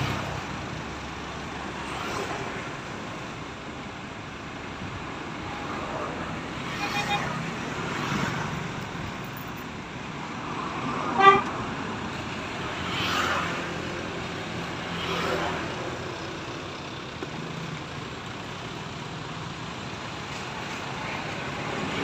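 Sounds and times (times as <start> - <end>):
road traffic passing: 0.0 - 22.0
vehicle horn toot: 6.7 - 7.4, 11.2 - 11.5.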